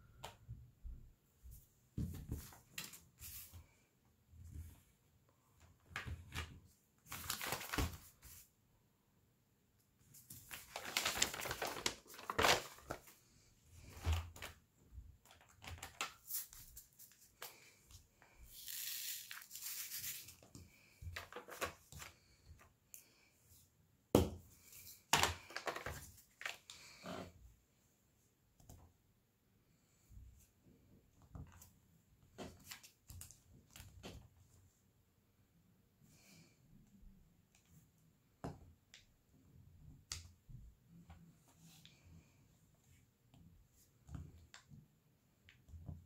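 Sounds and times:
plastic packaging crinkling: 0:10.4 - 0:13.1.

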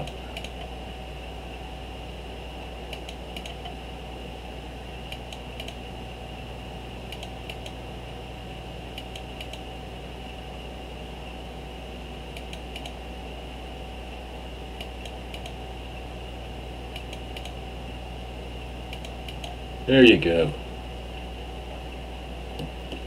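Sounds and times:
computer mouse clicks: 0:00.0 - 0:00.7, 0:02.9 - 0:03.8, 0:05.1 - 0:05.8, 0:07.1 - 0:07.8, 0:08.9 - 0:09.6, 0:12.3 - 0:13.0, 0:14.8 - 0:15.6, 0:16.9 - 0:17.6, 0:18.9 - 0:19.6
low electrical hum: 0:00.0 - 0:23.0.

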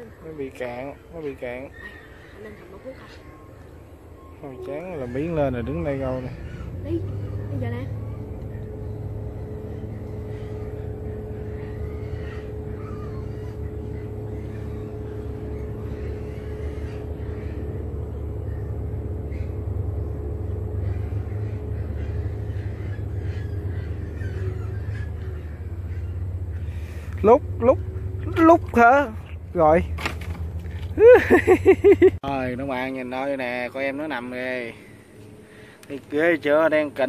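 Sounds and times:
faint constant hum: 0:00.0 - 0:37.0
low rumble: 0:03.2 - 0:32.8.

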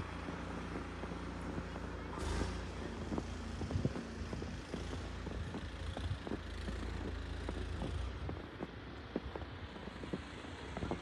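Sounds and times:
boots crunching in snow: 0:00.0 - 0:11.0.

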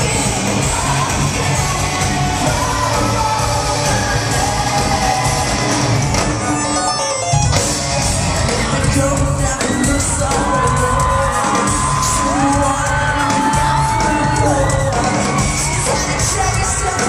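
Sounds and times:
rock band playing loud: 0:00.0 - 0:17.0
crowd shouting along: 0:07.9 - 0:17.0.

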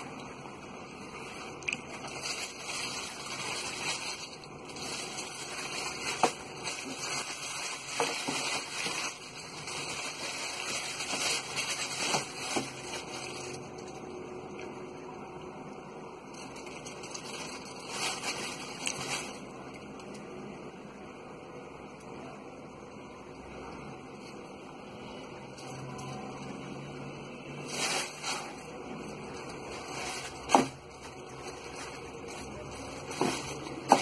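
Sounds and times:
tissue paper rustling: 0:00.0 - 0:14.1, 0:16.3 - 0:19.8, 0:27.5 - 0:34.0.

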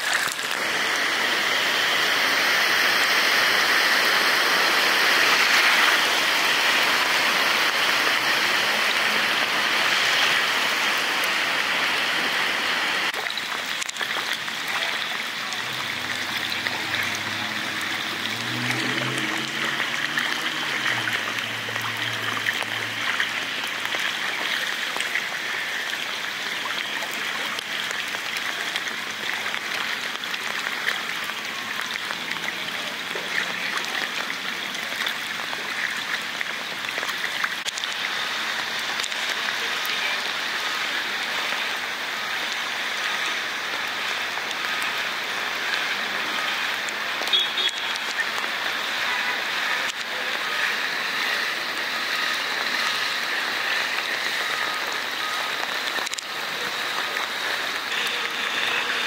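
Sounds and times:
heavy rain hissing: 0:00.0 - 0:59.0
running water: 0:00.0 - 0:59.0
low vehicle engine hum: 0:15.6 - 0:23.9.

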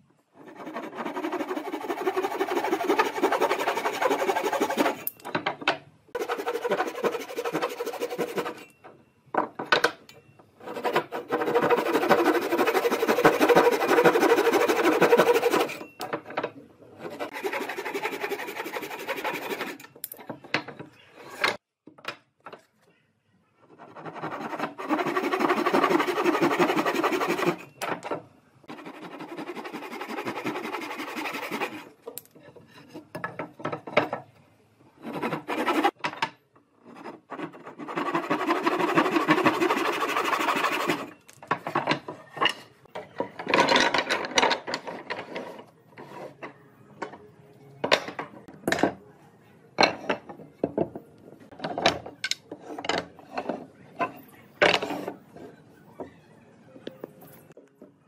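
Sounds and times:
tool working wood: 0:00.4 - 0:05.1, 0:06.2 - 0:08.7, 0:10.6 - 0:15.9, 0:17.0 - 0:19.8, 0:24.0 - 0:27.7, 0:28.7 - 0:31.9, 0:35.0 - 0:36.0, 0:37.3 - 0:41.1.

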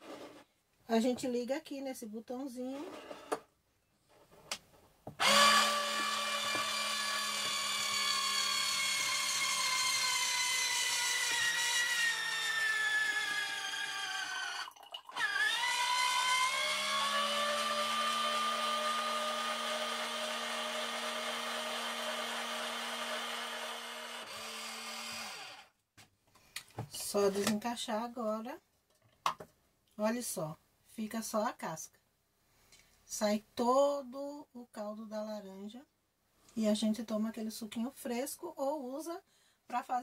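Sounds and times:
electric juicer motor whine: 0:05.2 - 0:25.6.

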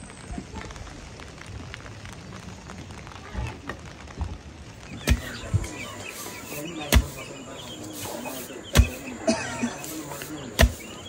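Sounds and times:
chickens clucking: 0:05.0 - 0:11.0
pestle pounding in stone mortar: 0:10.6 - 0:10.8.

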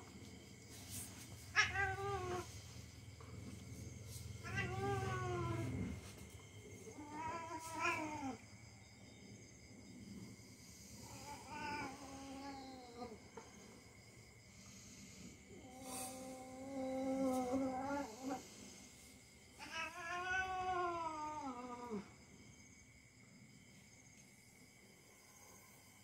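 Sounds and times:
cat meowing in yowls: 0:01.5 - 0:02.5, 0:07.0 - 0:08.4, 0:19.6 - 0:22.0.

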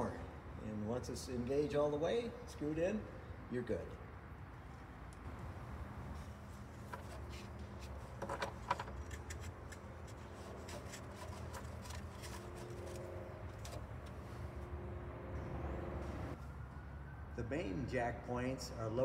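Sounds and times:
low steady hum: 0:04.2 - 0:16.4
small metal clicks and scraping: 0:06.8 - 0:14.2.

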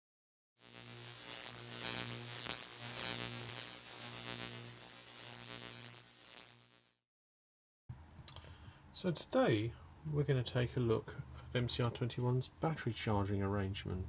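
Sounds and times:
electrical mains hum: 0:00.6 - 0:06.8
electrical buzz: 0:00.6 - 0:07.0.

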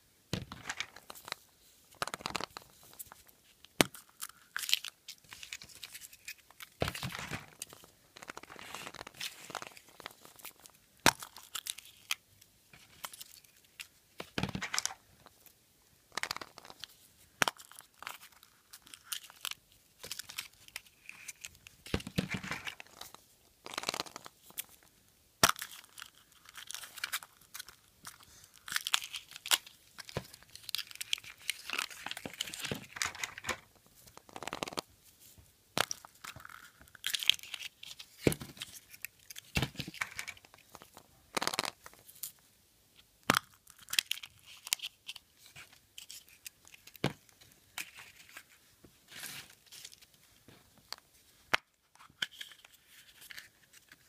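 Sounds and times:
foil wrapper crinkling and tearing: 0:25.6 - 0:33.6.

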